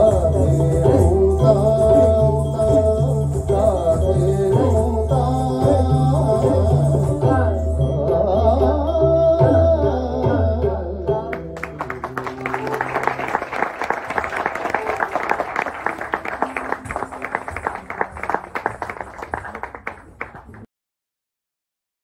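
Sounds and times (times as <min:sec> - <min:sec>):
audience applause: 0:11.6 - 0:20.7.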